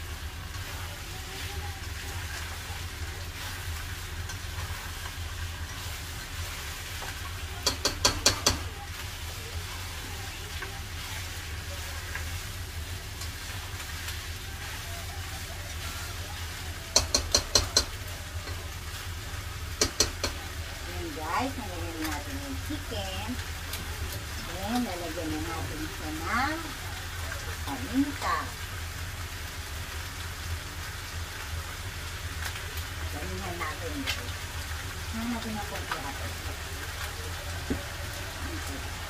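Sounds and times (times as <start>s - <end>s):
stirring in simmering pot: 0.0s - 33.6s.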